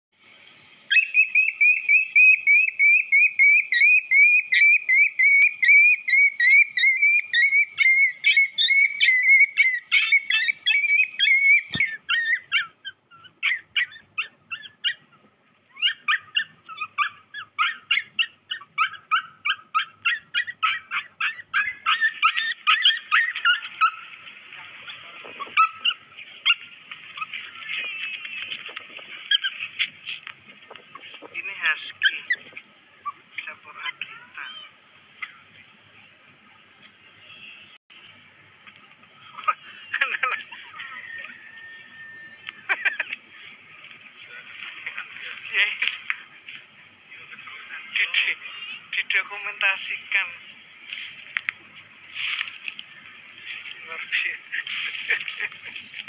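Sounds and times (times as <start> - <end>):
dog yelping and whimpering: 0.9 - 24.1, 24.9 - 27.4, 29.2 - 29.7.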